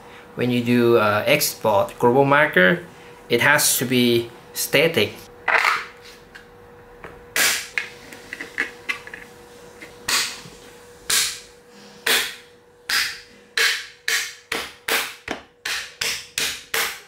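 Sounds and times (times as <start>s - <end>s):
fist knocking plastic parts: 12.1s - 17.0s.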